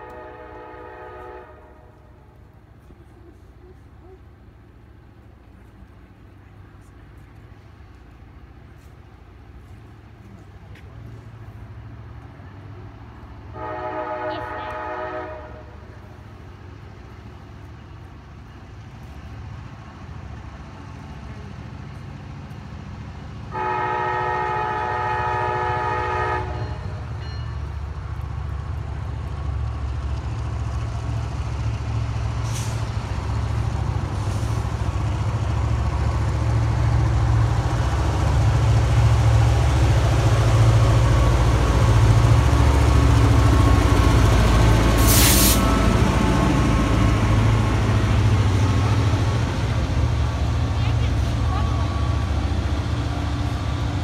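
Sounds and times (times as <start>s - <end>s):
locomotive air horn: 0.0s - 2.1s, 13.5s - 15.8s, 23.5s - 27.0s, 45.0s - 46.7s
diesel locomotive engine rumbling: 0.0s - 54.0s.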